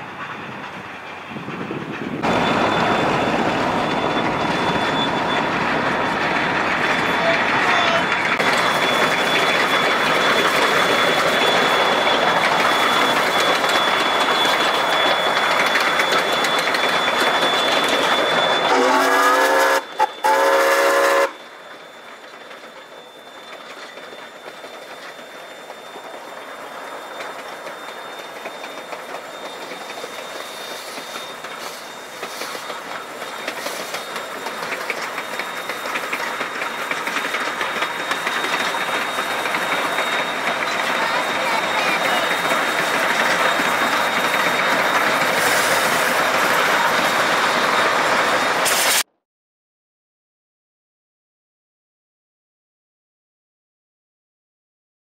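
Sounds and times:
steam locomotive running: 0:00.0 - 0:49.1
steam whistle blasts: 0:18.4 - 0:21.5.

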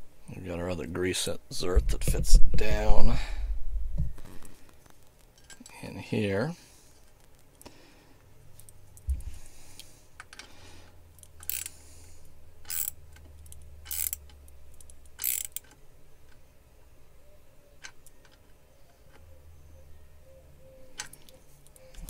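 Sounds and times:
hand tool scraping clicks: 0:11.2 - 0:11.8, 0:12.6 - 0:16.4.

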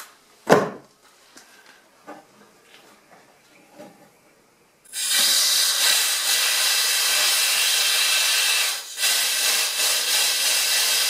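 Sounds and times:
compressed air hissing: 0:04.9 - 0:11.0.

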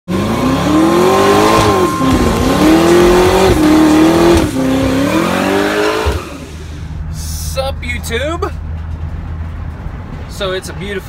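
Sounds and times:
engine revving high: 0:00.1 - 0:06.7.

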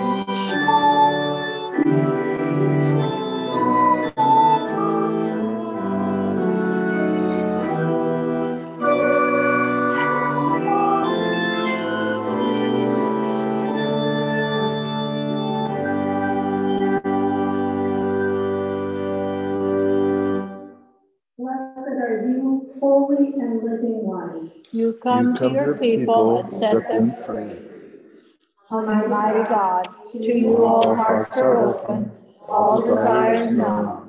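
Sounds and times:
pipe organ playing chords: 0:00.0 - 0:20.8, 0:25.1 - 0:27.9, 0:30.4 - 0:33.9.

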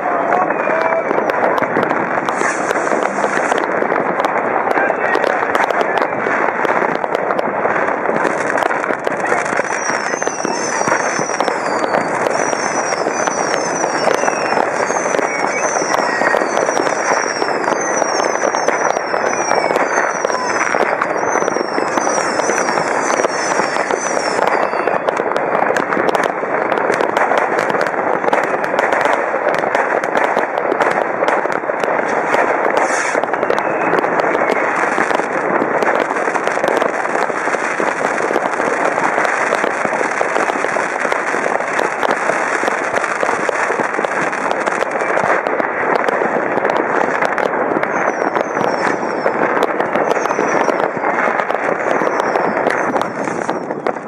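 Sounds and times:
fireworks crackling and banging: 0:00.0 - 0:54.0
high falling whistles: 0:09.5 - 0:25.2, 0:32.8 - 0:35.3, 0:47.9 - 0:51.0, 0:51.8 - 0:53.7.

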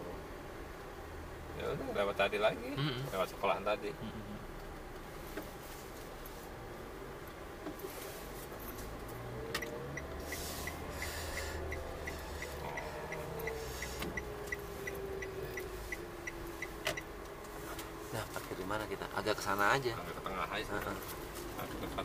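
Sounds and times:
engine and road hum: 0:00.0 - 0:22.0
turn signal clicking: 0:09.0 - 0:18.0
faint whine: 0:09.6 - 0:22.0.

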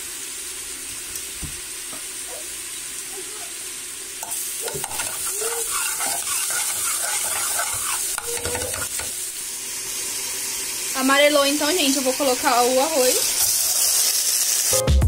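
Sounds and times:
garlic sizzling in hot oil: 0:00.0 - 0:14.8
spoon scraping pot bottom: 0:04.2 - 0:09.2.

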